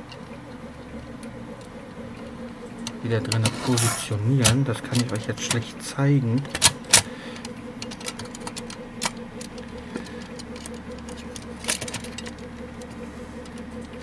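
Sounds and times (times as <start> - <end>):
steady low hum: 0.0 - 14.0
fingers clicking parts into metal frame: 7.8 - 9.6.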